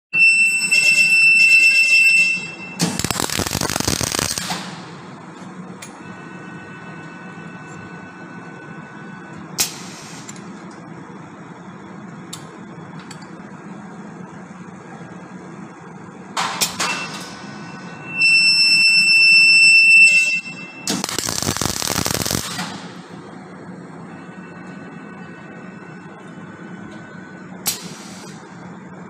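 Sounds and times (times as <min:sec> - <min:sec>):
low machine hum: 0:02.4 - 0:29.0
welding arc crackling: 0:02.8 - 0:04.9, 0:20.9 - 0:23.0
high-pitched electronic beep: 0:16.9 - 0:22.4.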